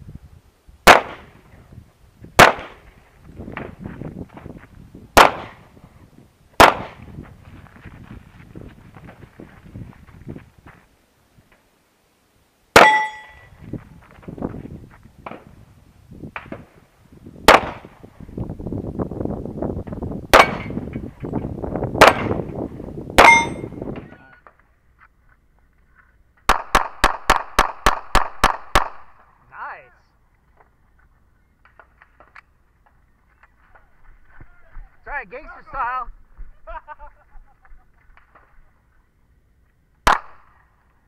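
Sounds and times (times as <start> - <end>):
rapid string of handgun shots: 0.9 - 1.4, 2.4 - 2.8, 5.2 - 5.6, 6.6 - 7.0, 17.4 - 17.9, 22.0 - 22.5, 26.5 - 29.2, 40.1 - 40.5
steel target ringing: 12.8 - 13.5, 23.2 - 23.8.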